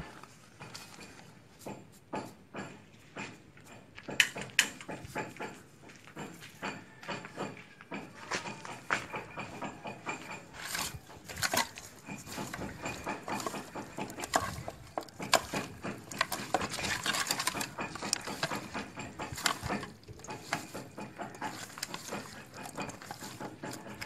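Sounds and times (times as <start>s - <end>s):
knocks and clinks against pot: 0.0s - 24.0s
fish being mixed by hand: 10.5s - 24.0s.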